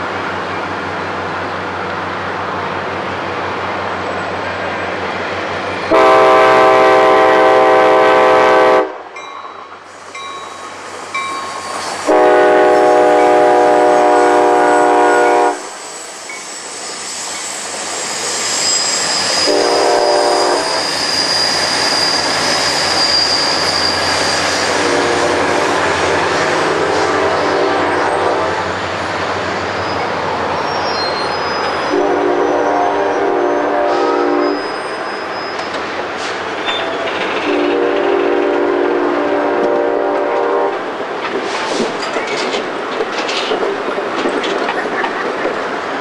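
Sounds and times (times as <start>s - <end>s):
train rumbling past: 0.0s - 46.0s
train horn blasts: 5.9s - 9.1s, 12.0s - 15.8s, 19.4s - 20.9s, 24.7s - 28.7s, 31.9s - 34.8s, 37.5s - 40.8s
high squeal: 9.9s - 12.2s, 15.6s - 25.4s, 29.0s - 32.0s, 34.4s - 37.3s.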